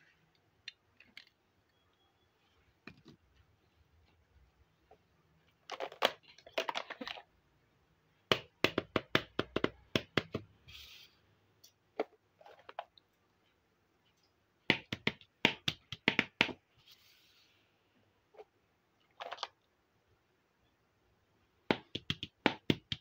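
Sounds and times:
plastic toy kitchenware clicking: 5.6 - 7.3.

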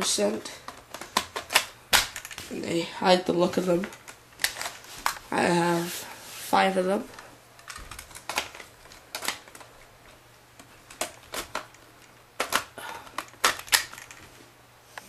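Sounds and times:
plastic magazines clicking: 0.6 - 2.4, 7.6 - 14.2.

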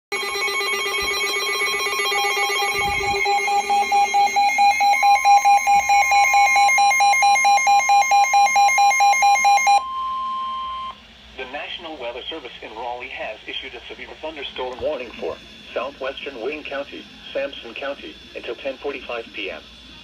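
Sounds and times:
buzzy electronic alarm beeping: 0.1 - 11.0
steady high alert tone: 0.1 - 11.0.

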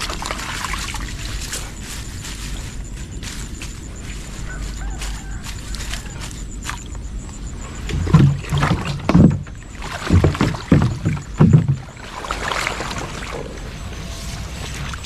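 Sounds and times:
water sloshing: 0.0 - 15.0
small boat knocking: 7.8 - 12.1.

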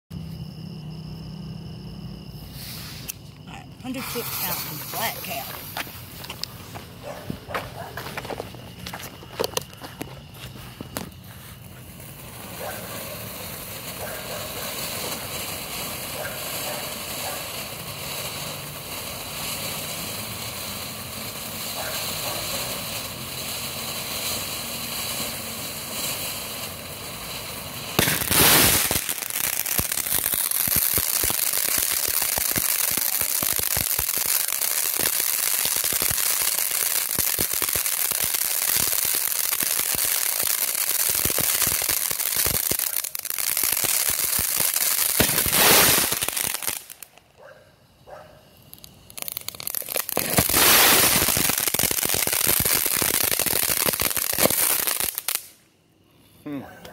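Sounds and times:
firework spraying hiss: 0.2 - 47.3, 47.9 - 55.7
firework crackling: 0.2 - 55.7
firework burst: 2.1 - 3.2, 3.8 - 7.0, 10.9 - 47.2, 48.5 - 55.6.

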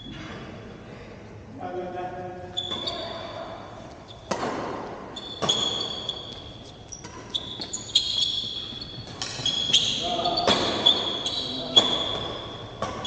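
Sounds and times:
sneakers squeaking on court floor: 2.5 - 13.0
racket striking shuttlecock: 4.2 - 6.4, 11.8 - 13.0.

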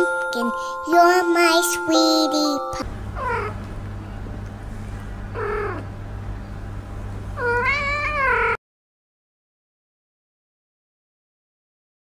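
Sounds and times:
kitten meowing: 7.4 - 8.6.

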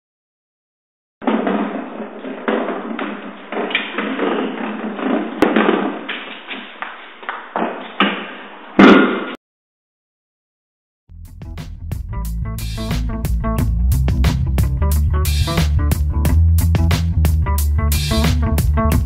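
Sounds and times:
metal cask rolling on concrete: 1.2 - 8.0.

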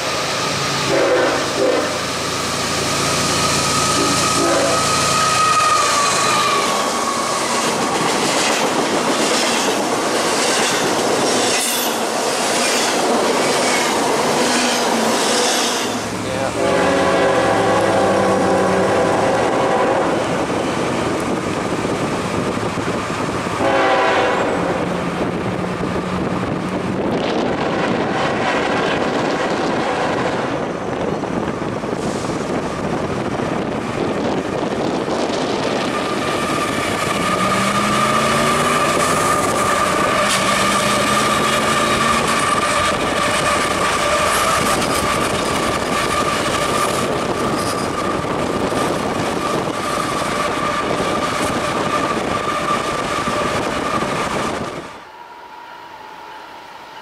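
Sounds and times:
diesel locomotive engines passing: 0.0 - 57.0
train horn: 0.8 - 2.1, 3.3 - 7.3, 16.4 - 20.4, 23.6 - 24.9, 27.6 - 30.4, 36.0 - 43.2
steady high tone: 54.9 - 57.0.

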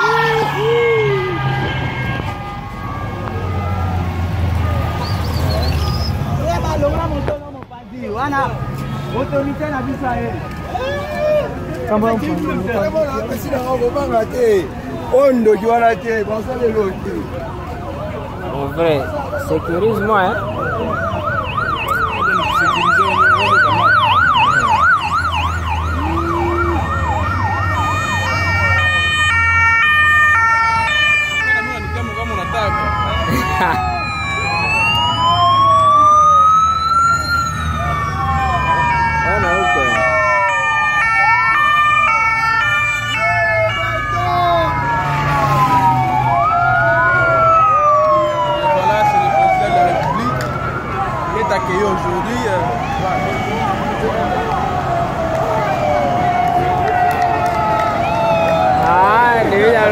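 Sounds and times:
yelp siren: 0.0 - 6.7, 15.7 - 59.9
stepping siren: 0.0 - 7.1, 15.4 - 59.9
engines rumbling: 0.0 - 59.9.

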